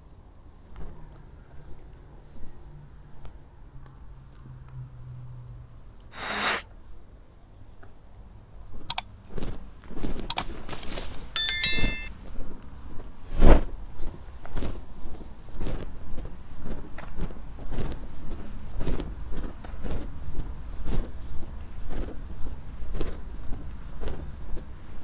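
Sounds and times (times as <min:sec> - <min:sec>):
short hiss: 0:06.2 - 0:06.6
metallic bell-like ring: 0:11.4 - 0:12.1.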